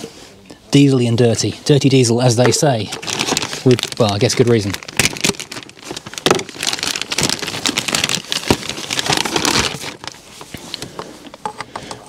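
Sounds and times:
crinkling and rustling: 0:02.4 - 0:12.0.

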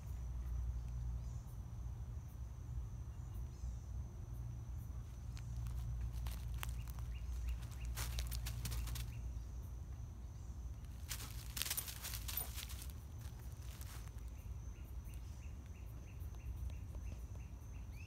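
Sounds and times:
footsteps on dry leaves: 0:05.1 - 0:09.2, 0:10.8 - 0:14.3.

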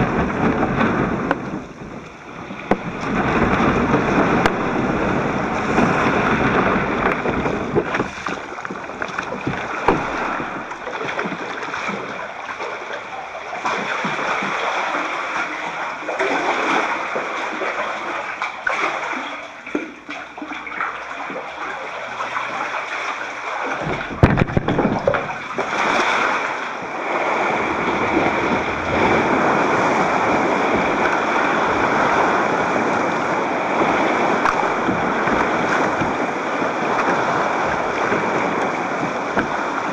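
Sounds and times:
heavy low thump: 0:00.0 - 0:11.4
water splashing around kayak: 0:00.0 - 0:39.9
waves breaking on rocks: 0:00.0 - 0:39.9.

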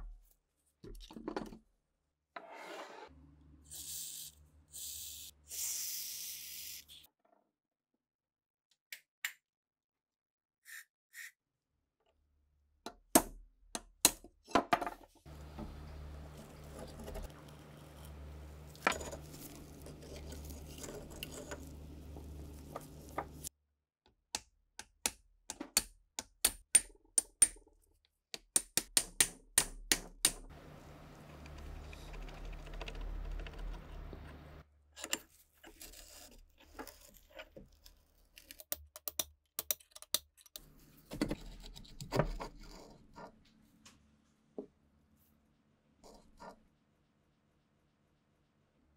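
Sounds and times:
low steady hum: 0:15.3 - 0:23.5, 0:30.5 - 0:34.6.

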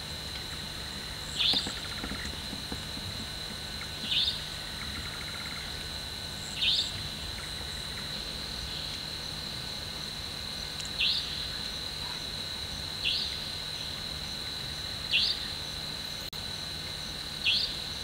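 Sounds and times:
crickets chirring: 0:00.0 - 0:18.0
nightjar sharp high calls: 0:03.8 - 0:05.8, 0:06.5 - 0:08.1, 0:11.0 - 0:11.6, 0:13.0 - 0:13.4, 0:17.4 - 0:17.8.

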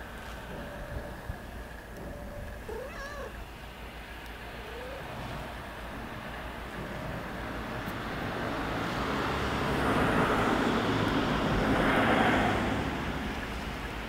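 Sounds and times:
low traffic hum: 0:00.0 - 0:14.0
vehicle passing by: 0:04.7 - 0:14.0.

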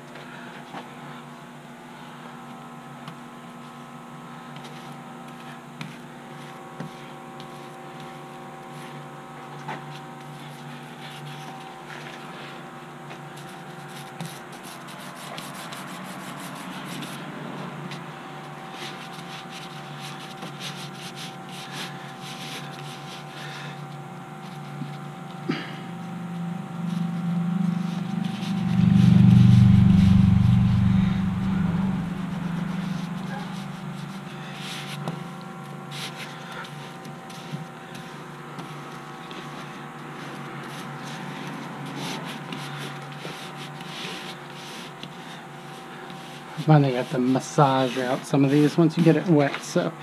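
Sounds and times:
faint hum: 0:00.0 - 0:48.7
brush scraping on canvas: 0:13.3 - 0:17.3, 0:18.6 - 0:23.6, 0:31.8 - 0:35.2, 0:35.8 - 0:48.8
low rumble: 0:26.0 - 0:34.6.

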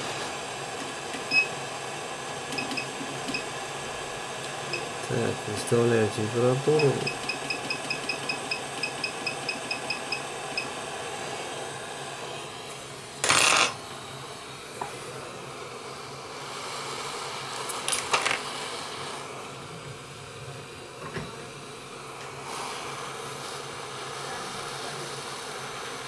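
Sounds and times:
hot-air blower hissing: 0:00.0 - 0:26.0
short high beeps: 0:06.8 - 0:10.7.

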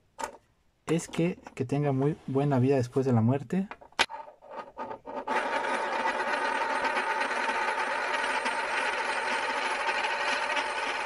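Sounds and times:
spinning top whirring rattle: 0:04.1 - 0:11.0.

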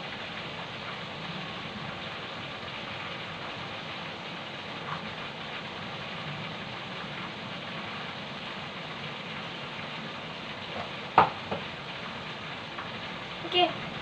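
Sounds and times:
chicken frying in hot oil: 0:00.0 - 0:14.0.

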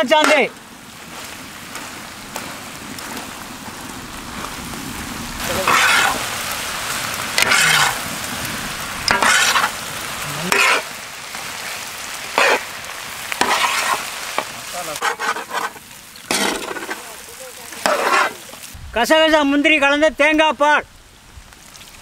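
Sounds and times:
frying sizzle: 0:00.0 - 0:22.0
metal ladle scraping in pan: 0:05.6 - 0:06.2, 0:07.4 - 0:08.0, 0:09.1 - 0:09.8, 0:10.5 - 0:10.9, 0:12.3 - 0:12.7, 0:13.4 - 0:17.1, 0:17.7 - 0:18.6.

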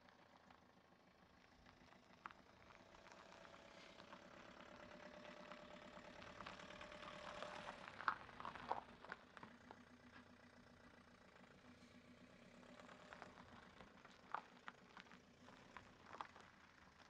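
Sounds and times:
van engine running: 0:00.0 - 0:17.0
tyres crunching on gravel: 0:01.6 - 0:10.6, 0:12.5 - 0:17.0.

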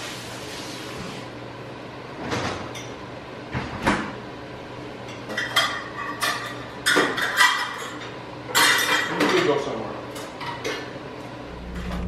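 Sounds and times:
dishes and utensils clinking: 0:05.1 - 0:09.6.

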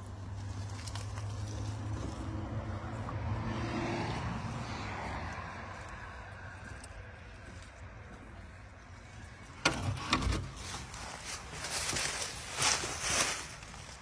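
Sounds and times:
vehicle passing by: 0:00.0 - 0:09.5.

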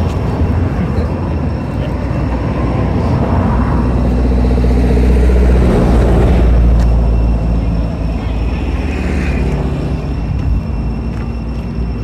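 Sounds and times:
vehicle engine low rumble: 0:00.0 - 0:12.0.

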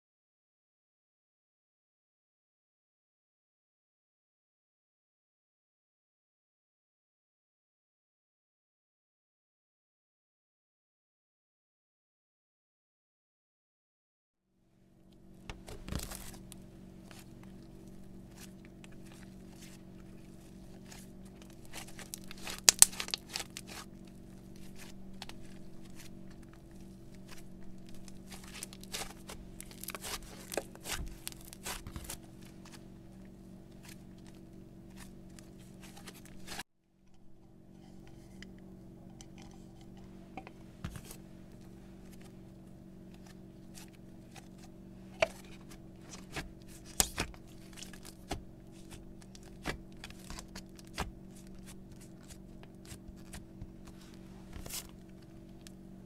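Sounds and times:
steady low hum: 0:14.6 - 0:56.0
slime squished by hand: 0:20.8 - 0:23.9, 0:27.2 - 0:32.8.

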